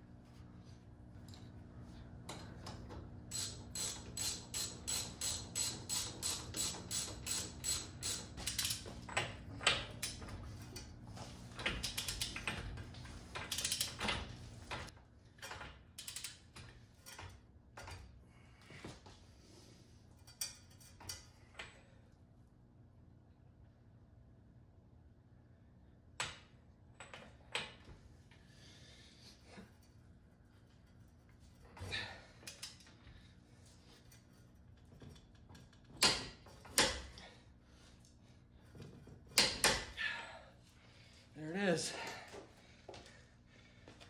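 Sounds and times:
ratchet wrench clicking: 0:03.3 - 0:08.9, 0:11.6 - 0:12.5, 0:13.4 - 0:14.0, 0:16.0 - 0:16.4.

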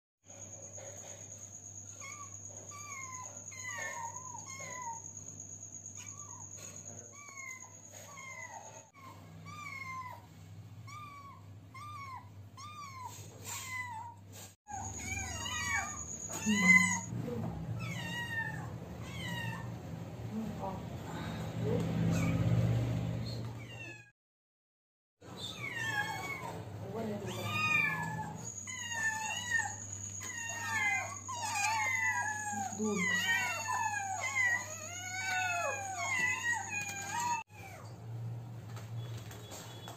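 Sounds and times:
kittens mewing: 0:06.0 - 0:17.1, 0:17.8 - 0:19.8, 0:25.3 - 0:37.8.

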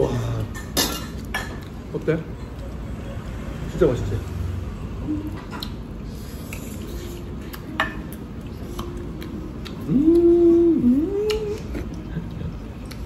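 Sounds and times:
person humming while chewing: 0:05.0 - 0:05.8, 0:06.4 - 0:13.0.

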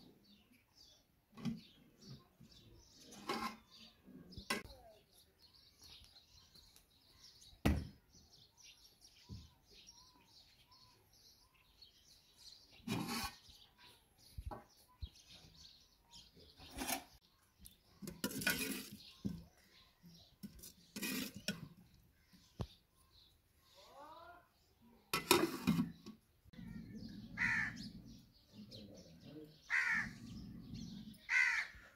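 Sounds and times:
small birds chirping: 0:00.0 - 0:31.9
metal pots and ladle clanking: 0:18.0 - 0:19.0, 0:20.4 - 0:21.8, 0:25.1 - 0:26.2.

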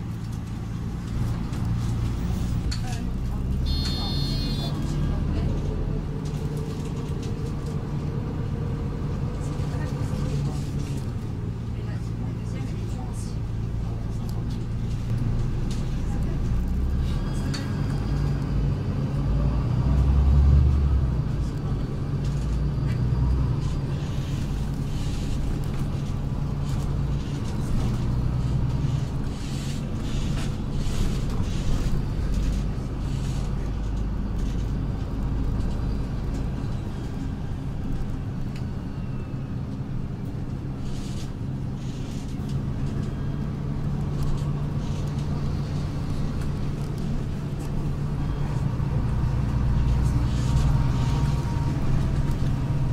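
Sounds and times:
bus engine hum: 0:00.0 - 0:52.9
light rattles and clicks: 0:21.3 - 0:38.7, 0:39.7 - 0:52.9.

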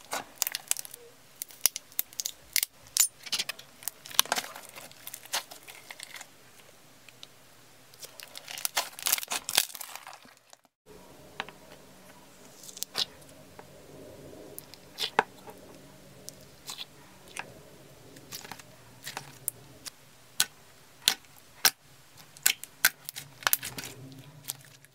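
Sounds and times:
slime crackling and tearing: 0:00.0 - 0:06.3, 0:08.0 - 0:10.6
faint steady hum: 0:10.9 - 0:24.9.

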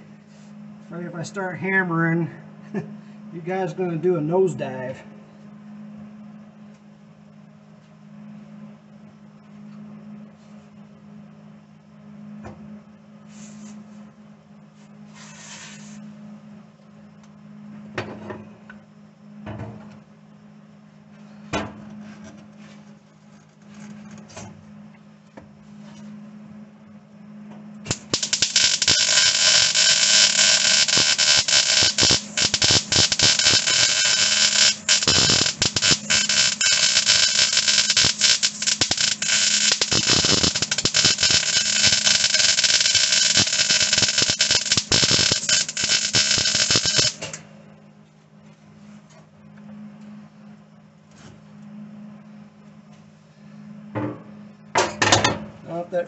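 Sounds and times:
low steady hum: 0:00.0 - 0:56.0
welder arc crackling: 0:27.8 - 0:47.4.

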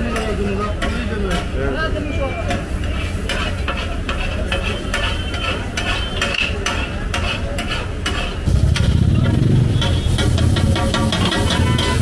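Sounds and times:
metal spatula scraping pan: 0:00.0 - 0:12.0
food sizzling in a pan: 0:08.5 - 0:12.0.

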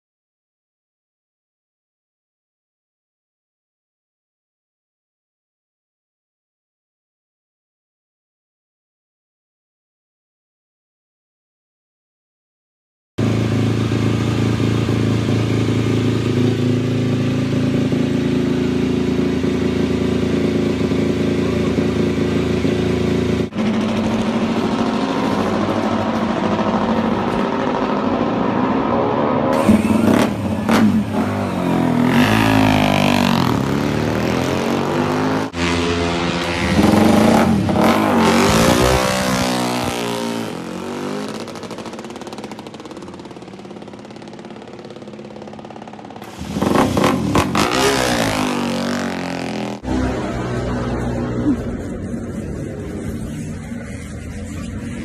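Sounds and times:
motorcycle engines revving: 0:13.2 - 0:55.0.

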